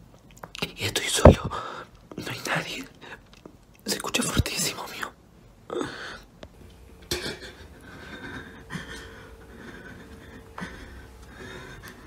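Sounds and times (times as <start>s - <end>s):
faint steady hum: 0.0s - 12.0s
quiet breathing: 1.4s - 2.0s, 5.7s - 12.0s.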